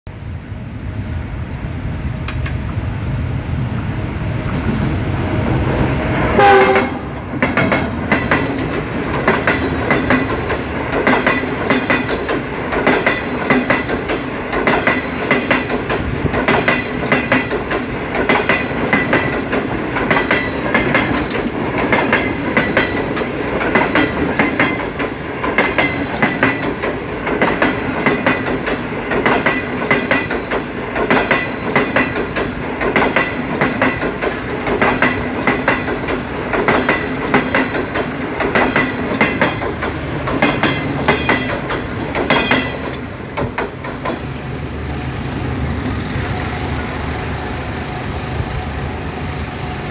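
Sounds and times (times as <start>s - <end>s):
diesel locomotive rumbling: 0.1s - 49.9s
wheels clacking over rail joints: 4.4s - 44.6s
train horn blast: 6.3s - 7.2s.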